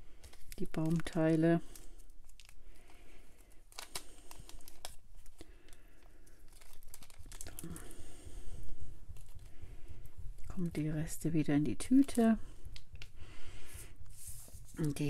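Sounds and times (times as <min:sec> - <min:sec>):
plastic bag crinkling: 0:00.0 - 0:10.7, 0:14.1 - 0:15.0.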